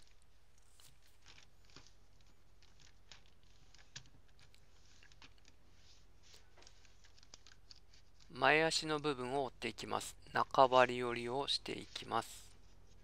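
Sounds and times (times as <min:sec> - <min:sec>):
paper rustling and creasing: 0:00.0 - 0:08.4.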